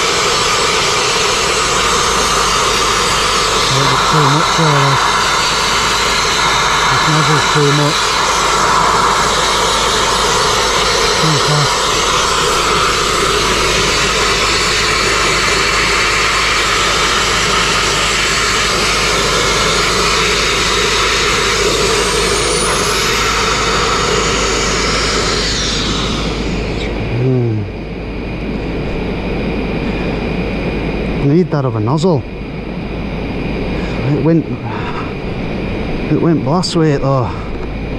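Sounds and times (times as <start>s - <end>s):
sandblasting nozzle hissing: 0.0s - 26.6s.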